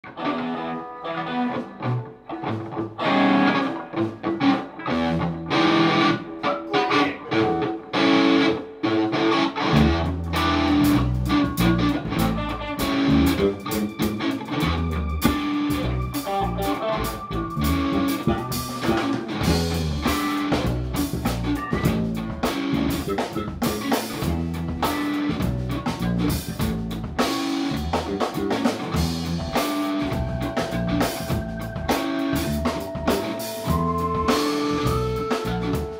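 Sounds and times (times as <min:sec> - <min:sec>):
bass guitar: 0:00.0 - 0:35.9
electric guitars: 0:00.0 - 0:35.9
drum kit: 0:09.6 - 0:35.9.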